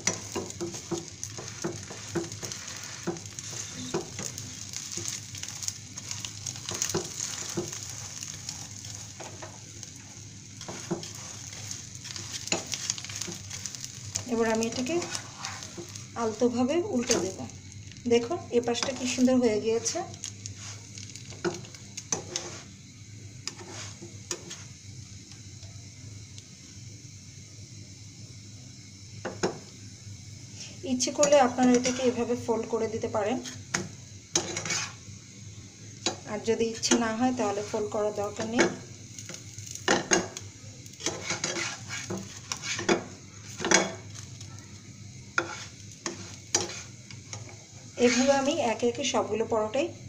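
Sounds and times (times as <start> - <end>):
frying sizzle: 0.0 - 50.0
plastic spatula scraping frying pan: 0.1 - 5.2, 10.6 - 16.4, 22.1 - 22.7, 34.4 - 35.0, 41.0 - 44.0, 45.4 - 46.9, 48.0 - 48.5
plastic spatula scraping pan: 34.4 - 35.0, 41.0 - 43.0, 48.0 - 48.4.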